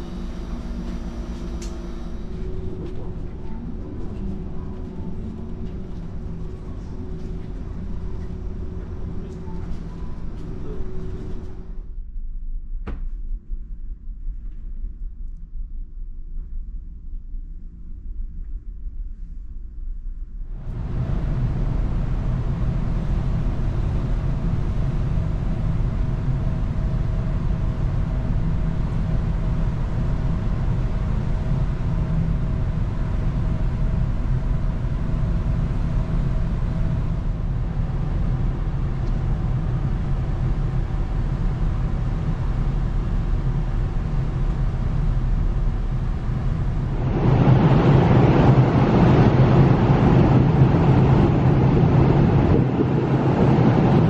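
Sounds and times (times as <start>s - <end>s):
faint steady hum tones: 0.0s - 54.0s
ferry machinery rumble: 20.6s - 54.0s
rushing wind: 20.6s - 54.0s.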